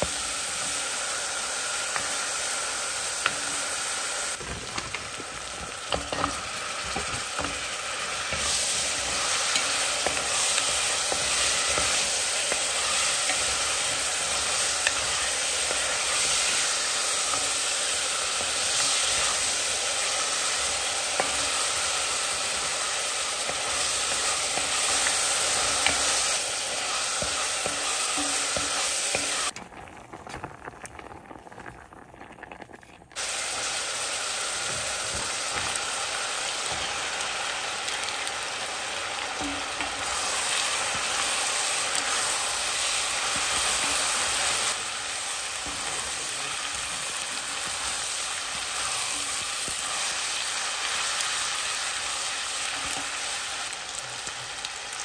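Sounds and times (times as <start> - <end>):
food sizzling in hot oil: 0.0 - 55.0.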